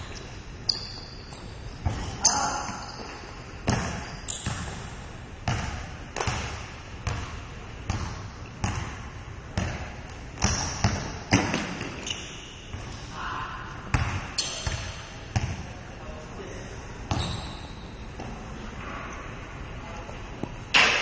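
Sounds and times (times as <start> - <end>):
basketball bouncing on gym floor: 0.7 - 13.0, 13.9 - 15.7, 17.1 - 18.4.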